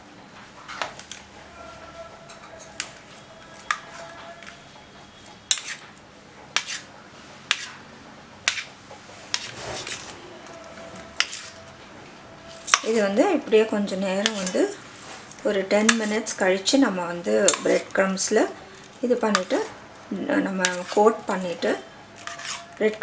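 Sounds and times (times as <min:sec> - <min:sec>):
metal spoon clinking on plate: 0:17.5 - 0:17.8.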